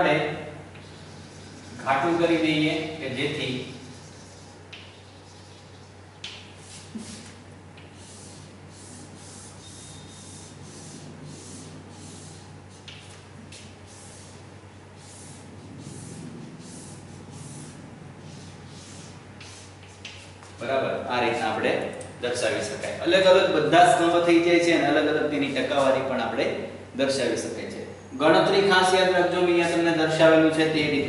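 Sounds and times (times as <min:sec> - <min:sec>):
low steady hum: 0:00.0 - 0:31.0
chalk scratching on blackboard: 0:03.6 - 0:20.6.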